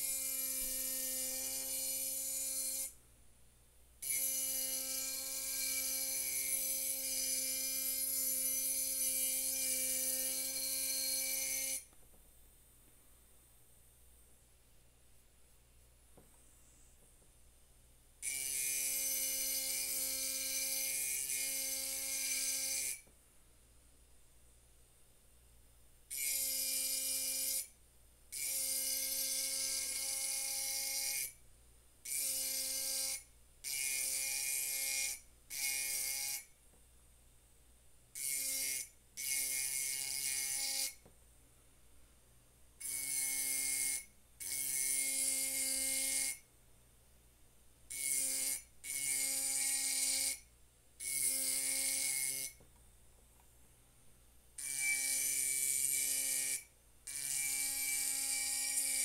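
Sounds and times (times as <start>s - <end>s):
engraving pen grinding glass: 0.0s - 3.0s, 4.0s - 11.9s, 28.4s - 31.4s, 51.0s - 52.6s, 54.6s - 59.0s.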